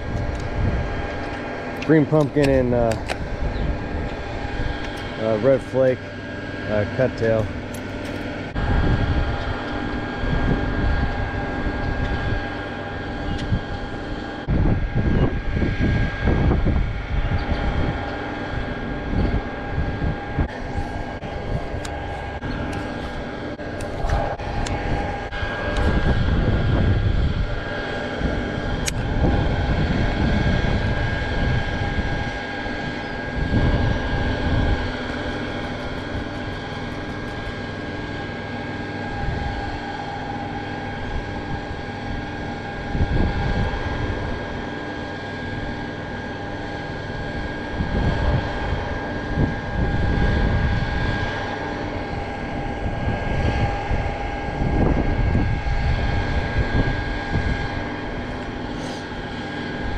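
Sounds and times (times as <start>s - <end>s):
steady mechanical hum: 0.0s - 59.9s
wind gusting across microphone: 0.0s - 59.9s.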